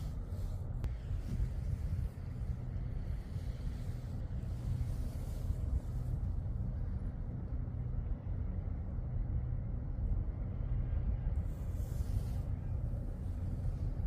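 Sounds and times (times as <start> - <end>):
low engine rumble: 0.0 - 14.0.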